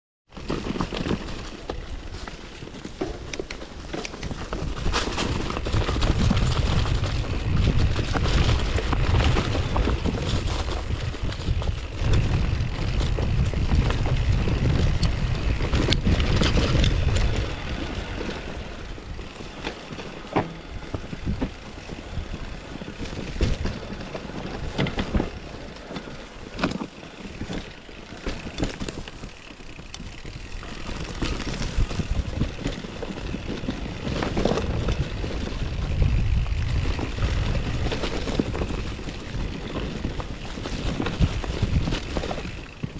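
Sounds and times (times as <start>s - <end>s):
bike rattling over bumps: 0.3s - 42.9s
bike tyres rolling on dirt: 0.3s - 42.9s
wind buffeting microphone: 3.4s - 42.9s.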